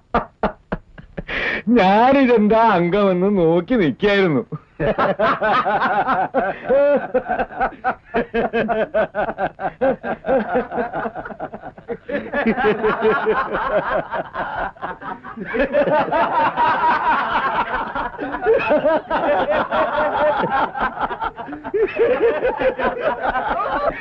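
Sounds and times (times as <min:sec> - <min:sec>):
people laughing: 0:04.8 - 0:24.0.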